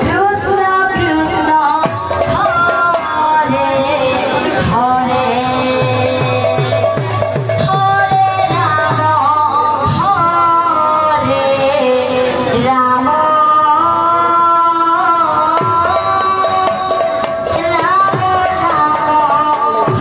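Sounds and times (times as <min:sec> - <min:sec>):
instrumental accompaniment: 0:00.0 - 0:20.0.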